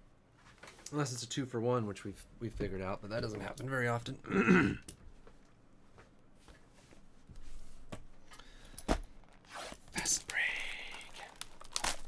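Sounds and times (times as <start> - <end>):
card packs clicking and rustling: 10.0 - 12.0.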